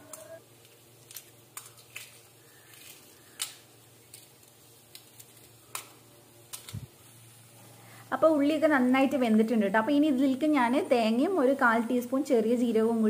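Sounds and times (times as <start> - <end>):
eggshells cracking and peeling: 0.1 - 6.9.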